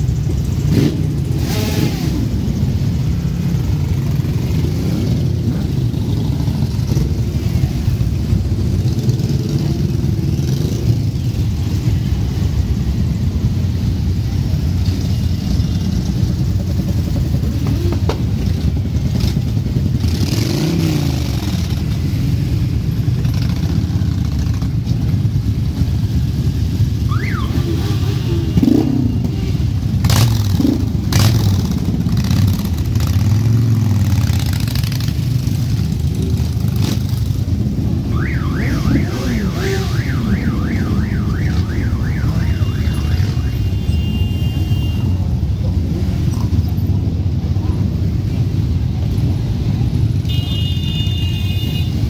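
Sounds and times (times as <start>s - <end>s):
motorcycle engines revving: 0.0s - 52.0s
warbling alarm tone: 38.1s - 43.7s.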